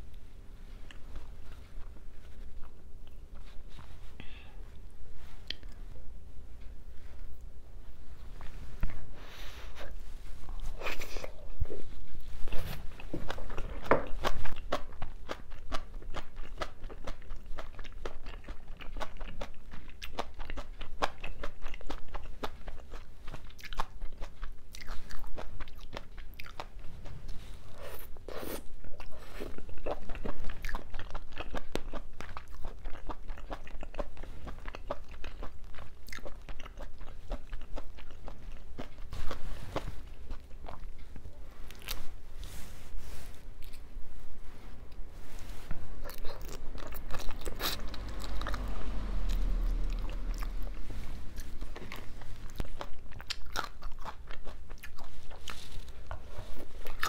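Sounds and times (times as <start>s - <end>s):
person chewing crunchy food: 8.8s - 42.7s, 45.7s - 57.0s.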